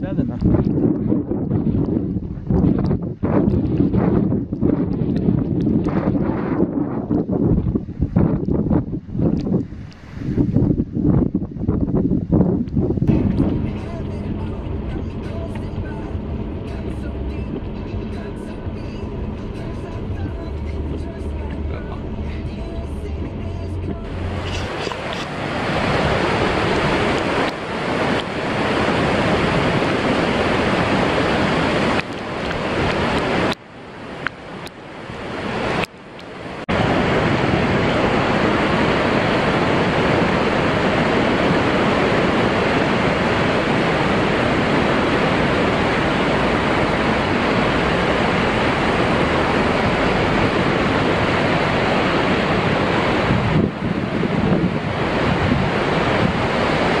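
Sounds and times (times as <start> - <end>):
wind on the microphone: 0.0 - 57.0
rush of falling water: 13.1 - 57.0.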